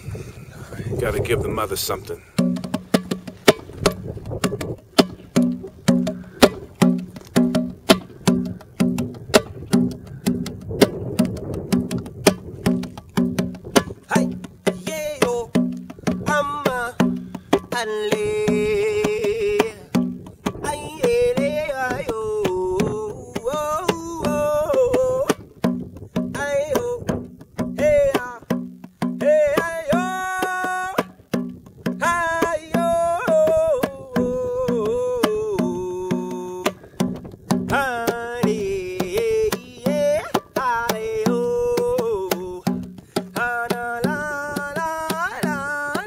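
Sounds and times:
wooden hand drum beating: 0:02.2 - 0:46.0
man singing wordless vocals: 0:13.9 - 0:46.0.

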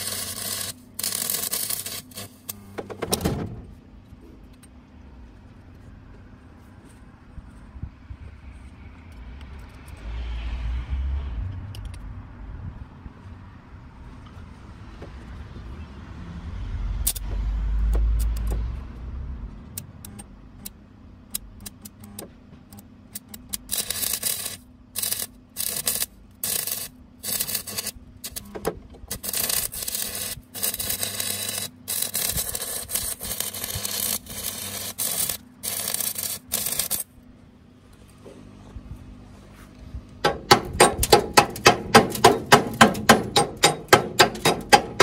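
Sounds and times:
welding rod scratching clicks: 0:00.0 - 0:02.6, 0:17.9 - 0:18.6, 0:21.3 - 0:37.1
crackling sizzling welding arc: 0:00.0 - 0:02.8, 0:23.2 - 0:37.2.

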